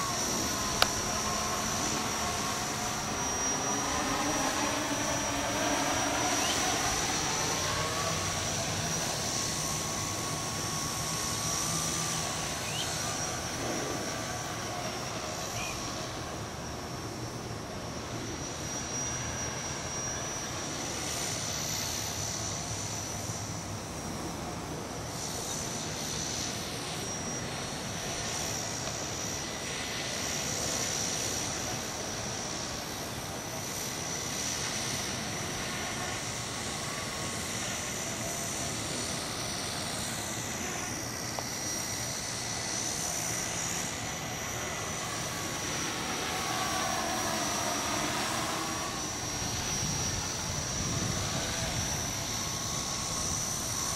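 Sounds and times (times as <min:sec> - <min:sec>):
drone motors whining: 0:00.0 - 0:53.9
wind noise on microphone: 0:49.2 - 0:53.9.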